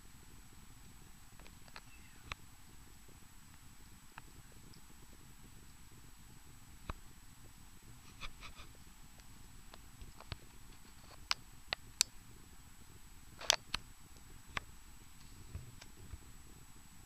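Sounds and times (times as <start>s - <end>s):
faint background hiss: 0.0s - 17.0s
sharp clicks and light taps: 1.4s - 2.4s, 8.1s - 12.2s, 13.4s - 16.2s.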